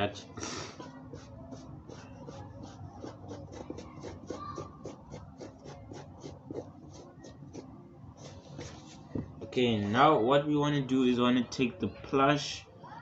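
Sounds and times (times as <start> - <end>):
toothbrush scrubbing suede: 1.0 - 9.2.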